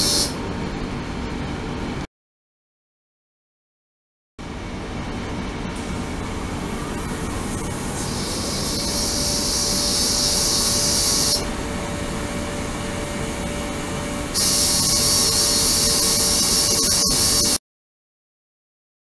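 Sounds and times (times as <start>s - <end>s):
high ultrasonic hiss: 0.0s - 0.4s, 6.6s - 11.5s, 14.3s - 17.6s.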